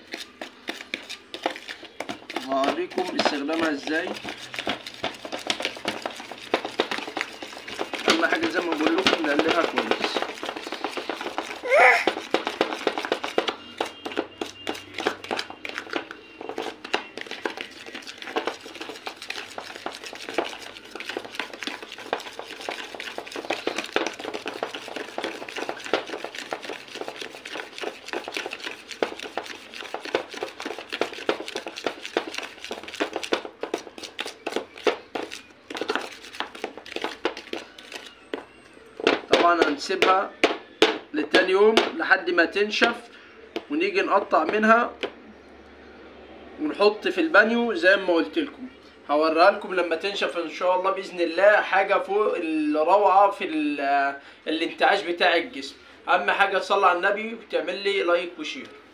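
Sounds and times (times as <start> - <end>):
spoon scraping paste in bowl: 0.0 - 40.1.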